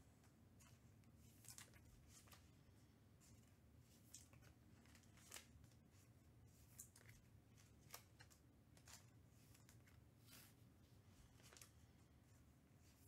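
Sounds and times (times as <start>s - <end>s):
trading cards being handled: 3.2s - 10.6s.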